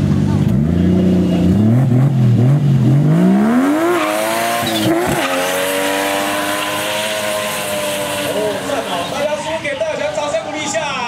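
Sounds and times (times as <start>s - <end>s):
car engine revving hard: 0.2s - 9.5s
tyres squealing: 4.0s - 10.2s.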